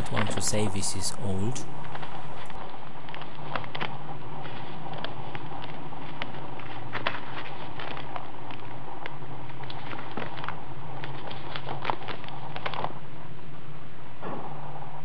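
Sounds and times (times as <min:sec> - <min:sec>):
old book pages crackling: 0:00.0 - 0:13.3
steady low hum: 0:00.0 - 0:15.0.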